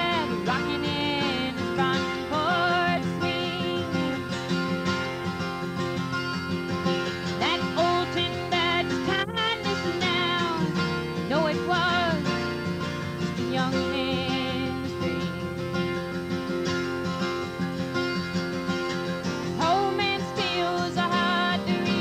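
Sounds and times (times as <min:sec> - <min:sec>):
woman singing: 0:00.0 - 0:04.8, 0:07.2 - 0:15.5, 0:19.5 - 0:22.0
strummed acoustic guitar: 0:00.0 - 0:22.0.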